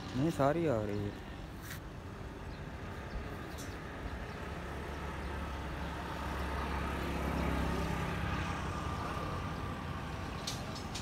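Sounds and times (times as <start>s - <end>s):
engine droning: 0.0s - 11.0s.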